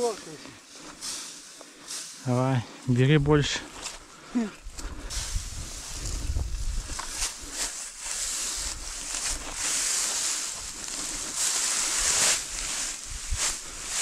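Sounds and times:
wind buffeting microphone: 4.6 - 7.6, 11.9 - 13.9
hay rustling and swishing: 5.1 - 14.0.

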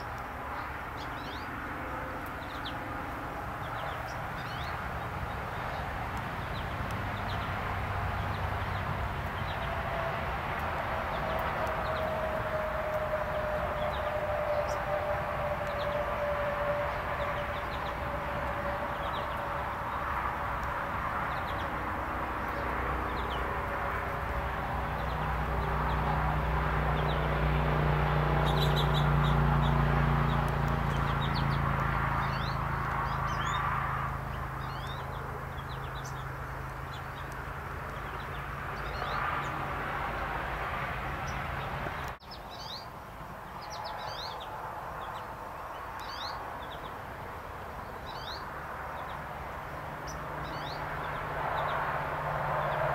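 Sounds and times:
low engine hum: 0.0 - 42.3
birds chirping: 0.0 - 52.9.

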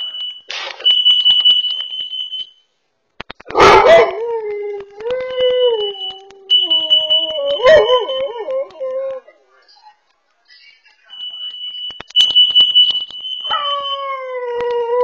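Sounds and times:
alarm high-pitched tone: 5.8 - 8.3, 11.1 - 14.1.

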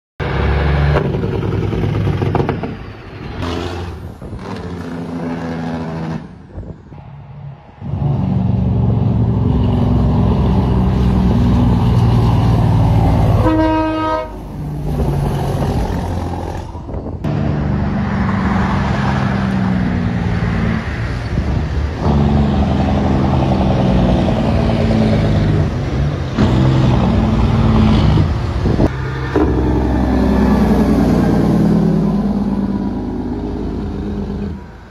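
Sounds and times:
diesel truck engines passing: 0.2 - 34.9
truck air horn: 13.2 - 14.5.

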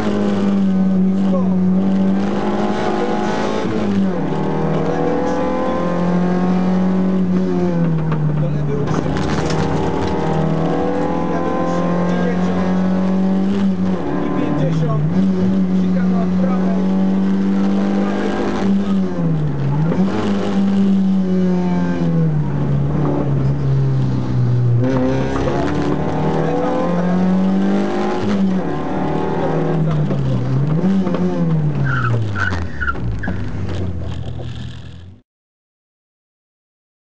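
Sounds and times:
rally car engine at high revs: 0.0 - 35.2.

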